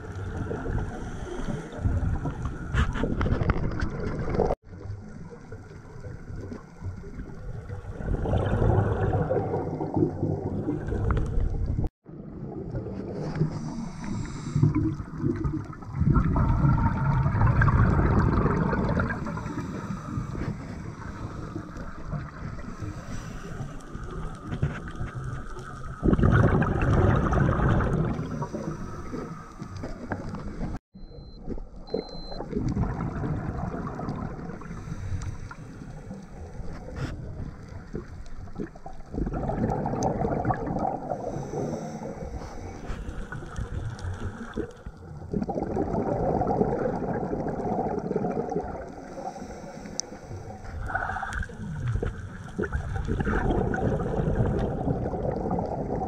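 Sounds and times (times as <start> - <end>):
steady water hiss: 0.0 - 3.2, 13.1 - 26.2, 27.7 - 30.8, 33.8 - 45.2, 46.8 - 55.0
diver exhaling bubbles underwater: 7.2 - 22.8, 25.4 - 30.8, 32.4 - 35.1, 36.8 - 49.4, 50.5 - 56.0.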